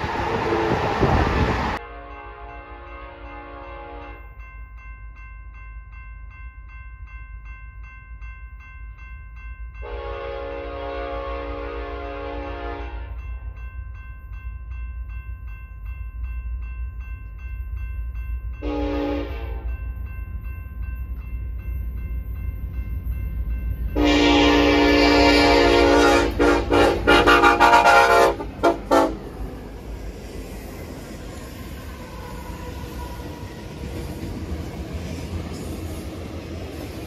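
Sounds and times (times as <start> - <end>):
locomotives passing close: 0.0 - 1.8
freight train rumble: 0.0 - 37.0
locomotive air horn blasts: 1.8 - 4.2, 9.8 - 13.2, 18.6 - 19.7, 24.0 - 29.3
crossing bell ringing: 1.8 - 37.0.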